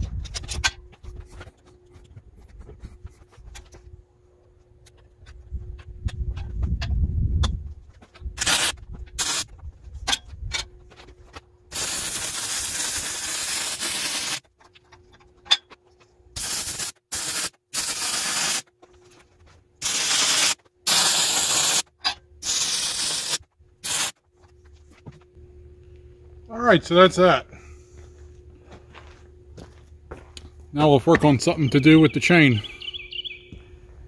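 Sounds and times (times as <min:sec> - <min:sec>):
welding arc hissing crackle: 0:08.4 - 0:09.5, 0:11.7 - 0:14.5, 0:16.4 - 0:18.7, 0:19.8 - 0:24.2.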